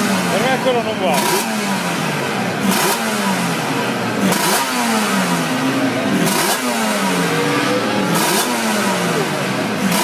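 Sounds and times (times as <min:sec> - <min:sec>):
motorcycle engine revving: 0:00.0 - 0:10.0.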